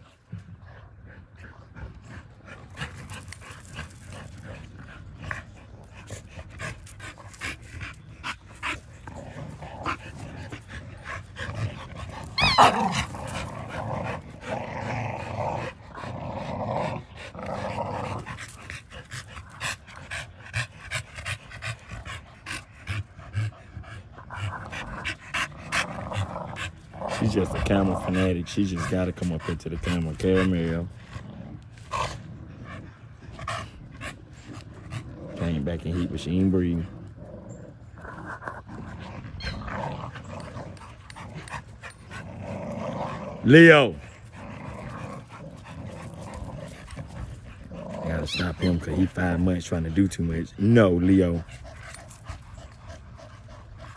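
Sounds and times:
puppies growling and panting: 0.0s - 53.9s
puppy wavering cry: 12.3s - 13.1s.

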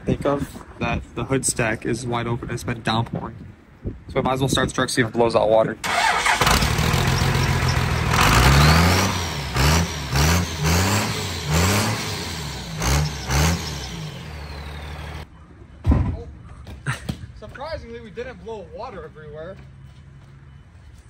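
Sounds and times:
diesel engine starting and revving: 5.8s - 15.3s.

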